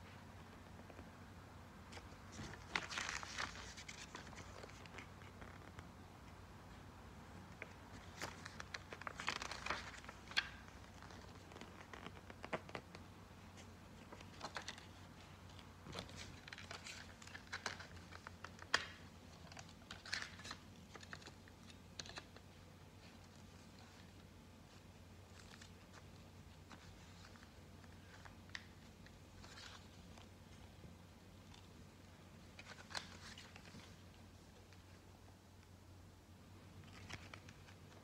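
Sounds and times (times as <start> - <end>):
packaging crinkling: 7.6 - 12.8, 15.8 - 22.4.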